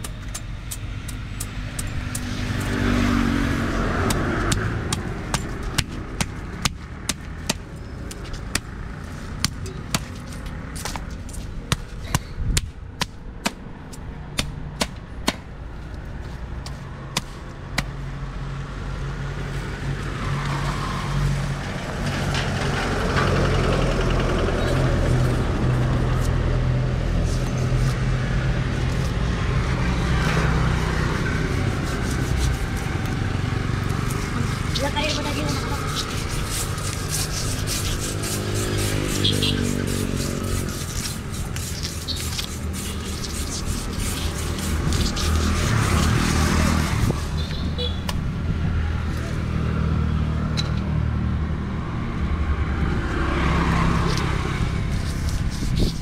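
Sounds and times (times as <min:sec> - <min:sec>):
road vehicles passing: 0:00.0 - 0:56.0
knife scraping fish scales: 0:30.1 - 0:33.2, 0:33.8 - 0:47.9, 0:54.0 - 0:56.0.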